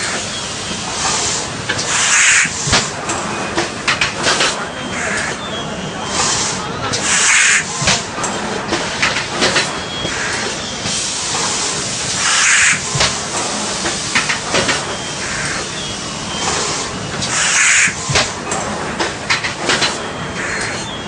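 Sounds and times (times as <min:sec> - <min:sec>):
hissing air blasts: 0:00.0 - 0:03.0, 0:06.0 - 0:08.0, 0:08.8 - 0:18.4
machine clattering: 0:06.2 - 0:15.7, 0:16.3 - 0:20.8.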